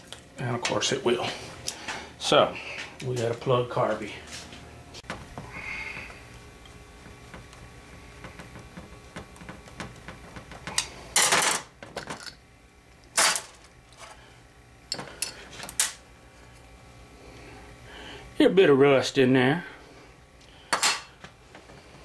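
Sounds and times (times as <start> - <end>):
metal parts clinking on workbench: 13.2 - 13.7.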